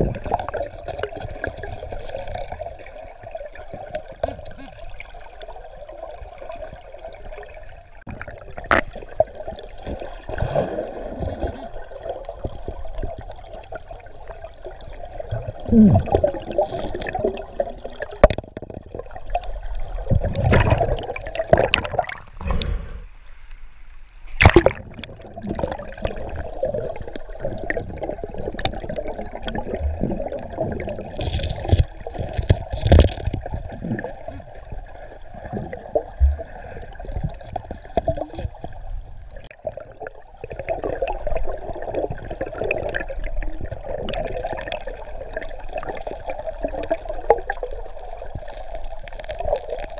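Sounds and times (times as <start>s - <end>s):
underwater river current rushing: 0.0s - 49.9s
rocks clicking and knocking: 31.1s - 34.0s.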